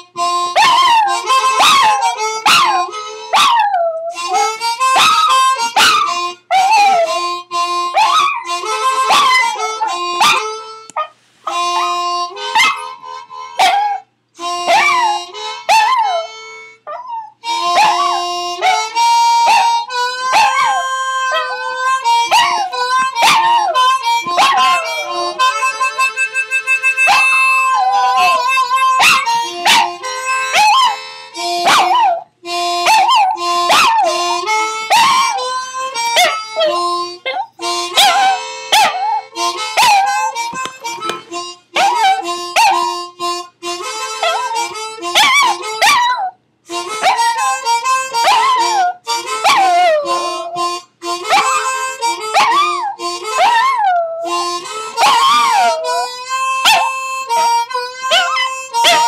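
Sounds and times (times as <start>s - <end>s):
harmonica notes and chords: 0.0s - 59.0s
dog howling: 0.6s - 4.1s, 5.8s - 7.1s, 14.7s - 19.7s, 20.3s - 25.4s, 27.1s - 31.0s, 31.7s - 32.2s, 32.8s - 35.4s, 36.2s - 40.3s, 41.8s - 42.8s, 45.2s - 46.4s, 48.2s - 50.6s, 52.3s - 54.3s, 55.0s - 59.0s.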